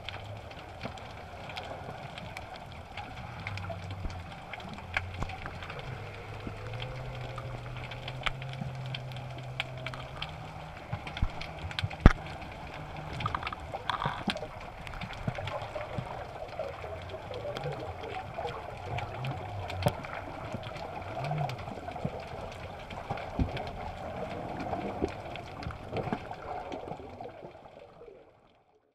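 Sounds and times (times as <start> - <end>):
underwater crackle of sharp clicks: 0.0 - 27.3
low hum shifting in pitch: 3.2 - 14.2.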